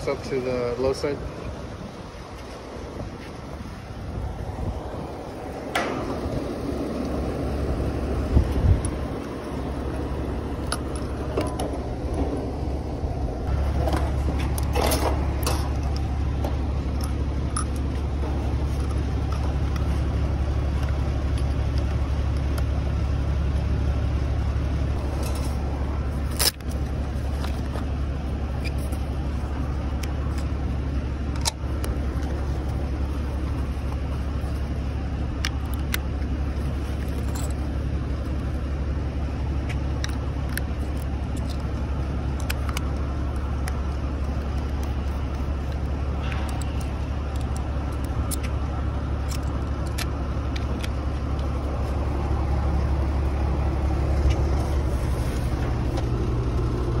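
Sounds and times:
vacuum pump humming: 0:01.5 - 0:36.6.

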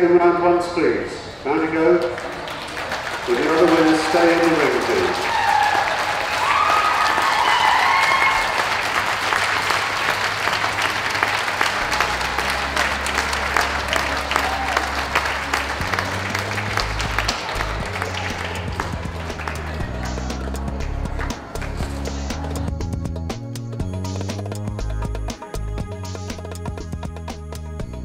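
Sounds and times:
audience clapping: 0:01.8 - 0:22.7
low steady music notes: 0:11.4 - 0:28.0.

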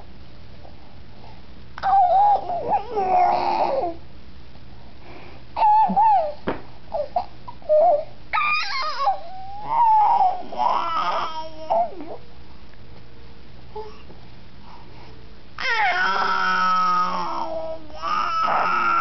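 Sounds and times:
baby squealing and babbling: 0:01.8 - 0:04.0, 0:05.6 - 0:12.2, 0:15.6 - 0:19.0.

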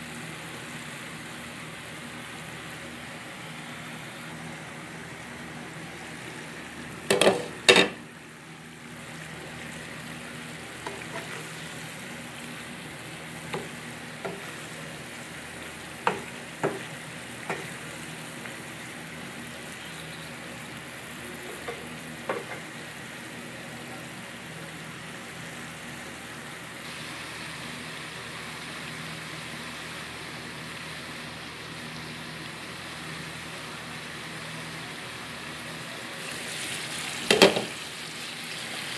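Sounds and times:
food sizzling in a frying pan: 0:00.0 - 0:38.9
wooden spatula tapping pan: 0:16.0 - 0:17.8.

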